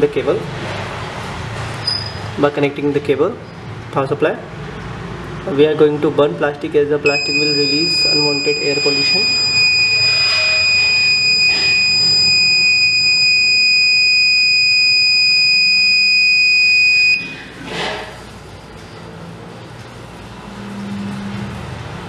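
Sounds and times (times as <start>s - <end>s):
high-pitched buzzer tone: 7.1s - 17.4s.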